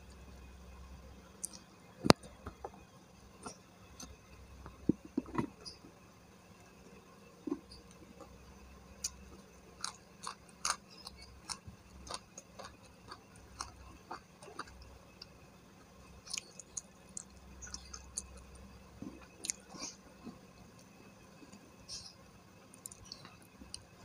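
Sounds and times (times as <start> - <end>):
faint low hum: 0.0 - 24.0
person chewing food: 1.4 - 2.8, 9.0 - 15.4, 16.2 - 22.0, 22.7 - 23.9.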